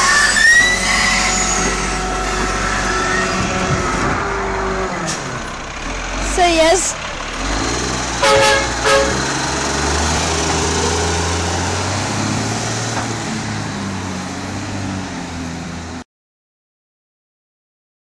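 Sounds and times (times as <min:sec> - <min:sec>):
truck engine running: 0:00.0 - 0:16.0
truck horn tooting: 0:08.2 - 0:09.4.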